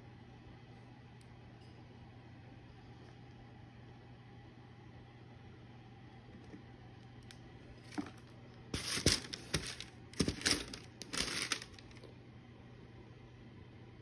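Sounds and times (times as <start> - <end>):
packing paper crinkling: 7.8 - 12.1.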